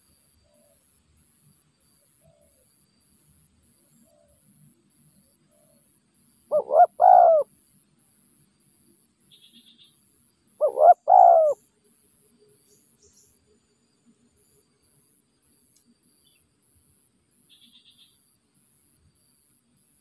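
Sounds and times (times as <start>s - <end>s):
dove cooing: 6.5s - 7.5s, 10.6s - 11.6s.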